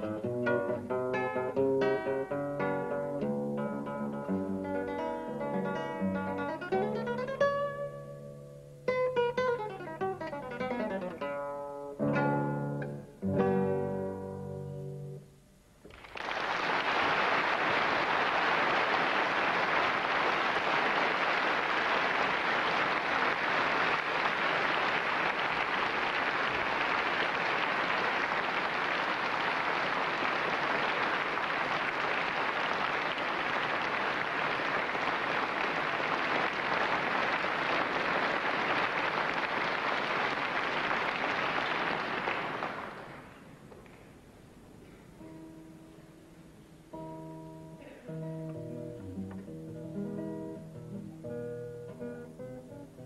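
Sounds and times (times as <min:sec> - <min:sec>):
acoustic guitar notes: 0:00.0 - 0:15.8, 0:44.8 - 0:53.0
audience applauding: 0:15.9 - 0:44.0.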